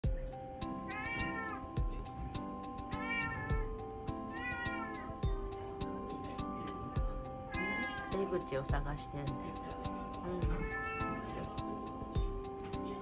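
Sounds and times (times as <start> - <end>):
background music with steady beat: 0.0 - 13.0
cat meowing: 0.9 - 1.7, 2.9 - 5.2, 7.5 - 8.2, 10.4 - 11.3.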